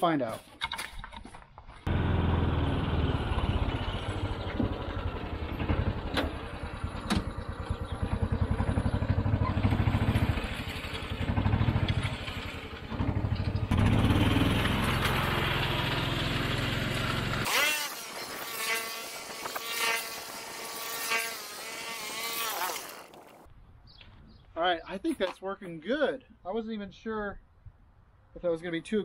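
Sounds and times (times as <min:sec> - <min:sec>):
utility vehicle engine running: 0:01.9 - 0:17.5.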